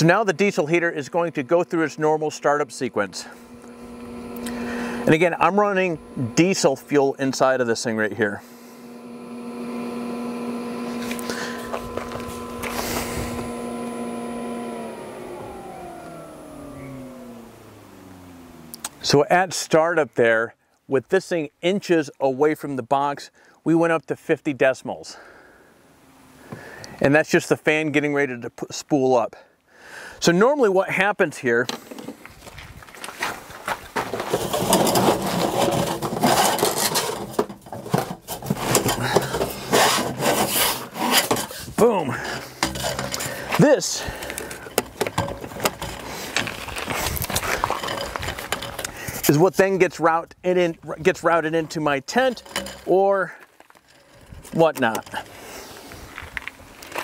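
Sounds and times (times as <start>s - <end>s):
heater blower fan humming: 0.0s - 19.2s, 25.2s - 27.1s, 33.9s - 56.9s
gear rubbing and scraping: 3.2s - 19.2s, 31.8s - 50.0s, 50.9s - 57.0s.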